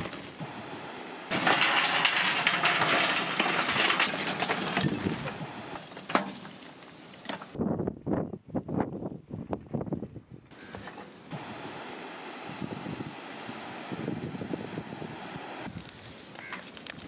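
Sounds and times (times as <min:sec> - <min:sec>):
charcoal clattering into metal tray: 0:01.3 - 0:06.6.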